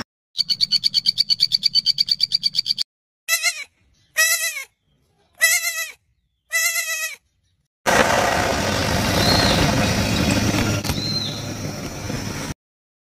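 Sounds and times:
young goat bleating: 3.3 - 7.3.

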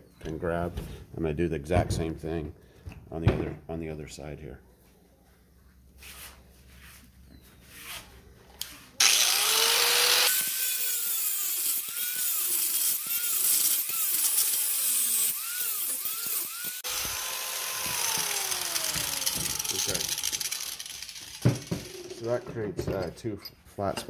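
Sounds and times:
angle grinder grinding steel: 9.0 - 22.5.

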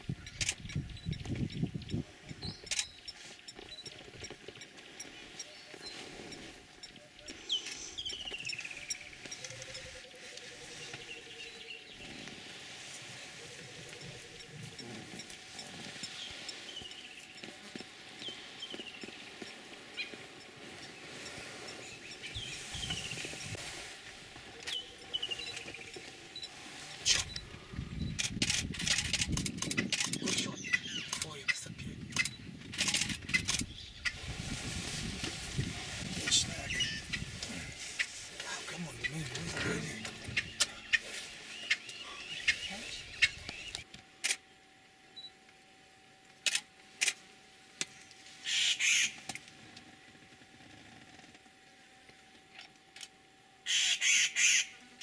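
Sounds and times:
crackling and clicking: 28.2 - 33.7.

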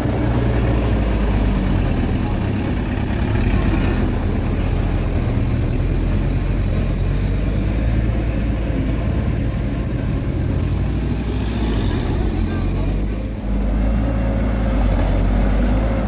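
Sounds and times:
diesel engine running: 0.0 - 16.0.

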